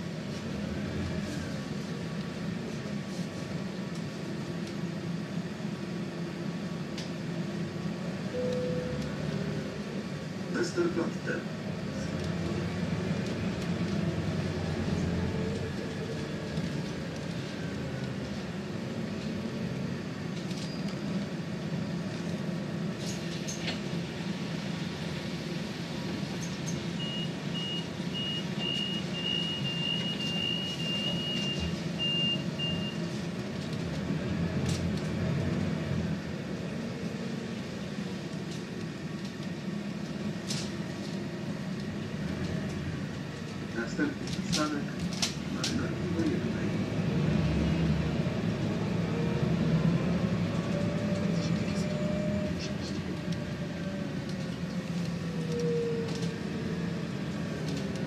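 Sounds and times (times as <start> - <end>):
bus engine and road drone: 0.0 - 58.0.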